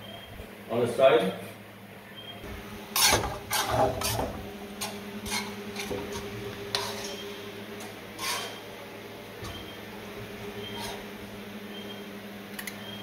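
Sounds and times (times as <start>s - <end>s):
steady low hum: 0.0s - 13.0s
metal spoon scraping pan: 2.9s - 8.7s, 10.6s - 11.1s.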